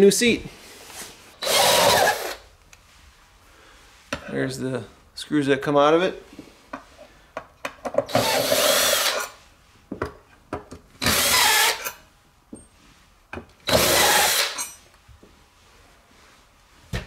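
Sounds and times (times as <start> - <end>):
cordless drill whining: 1.4 - 2.4, 8.1 - 9.4, 11.0 - 12.0, 13.7 - 14.7.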